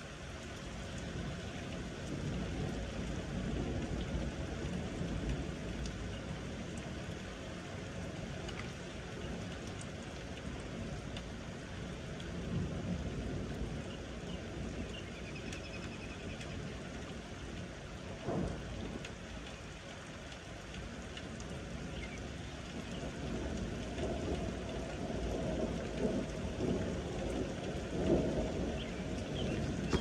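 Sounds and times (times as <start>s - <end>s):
rain falling: 0.0s - 30.0s
thunder rumbling: 23.0s - 30.0s.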